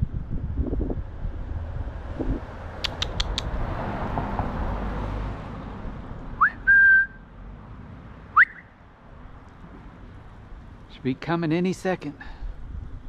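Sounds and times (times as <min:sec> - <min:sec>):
person whistling: 0:06.4 - 0:07.2, 0:08.4 - 0:08.7.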